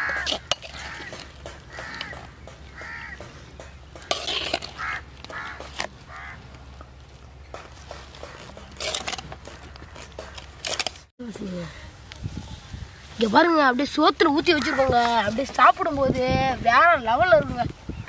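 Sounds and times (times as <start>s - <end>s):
crows cawing: 0.0s - 3.4s, 4.0s - 6.5s, 14.6s - 15.1s.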